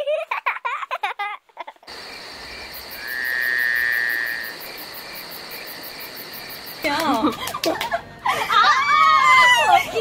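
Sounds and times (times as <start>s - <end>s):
cricket trill: 1.9s - 7.5s
crickets chirping: 1.9s - 8.5s.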